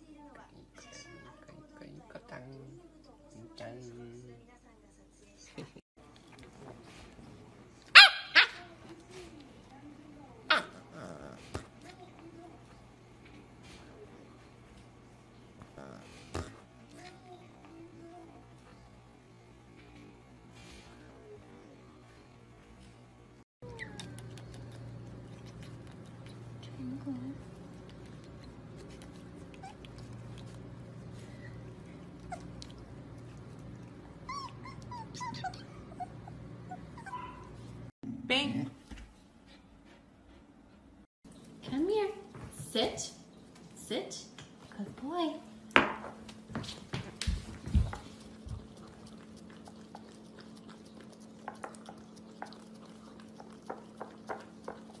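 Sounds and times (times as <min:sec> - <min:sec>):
puppy licking: 0:23.6 - 0:35.7, 0:47.3 - 0:55.0
puppy whimpering and yipping: 0:34.2 - 0:37.6.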